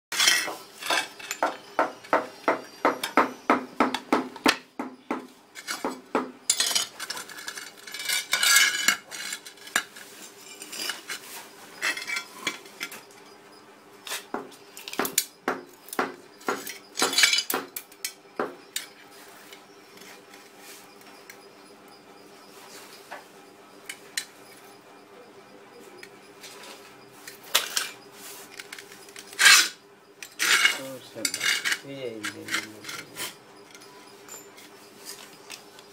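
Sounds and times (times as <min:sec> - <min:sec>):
ceramic tiles clicking and clinking: 0:06.5 - 0:11.2.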